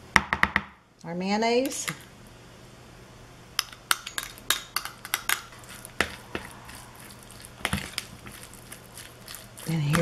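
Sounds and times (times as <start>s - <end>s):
spoon scraping ceramic bowl: 4.0s - 10.0s.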